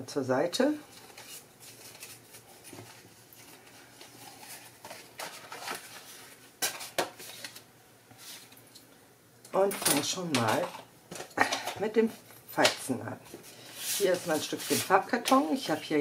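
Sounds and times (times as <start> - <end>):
paper rustling and sliding: 0.9 - 8.6, 13.3 - 15.4.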